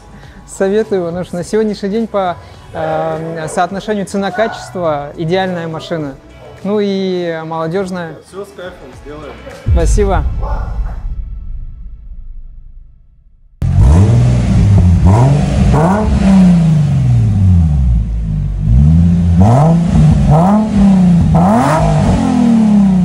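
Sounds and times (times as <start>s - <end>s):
car engine revving: 13.6s - 23.0s.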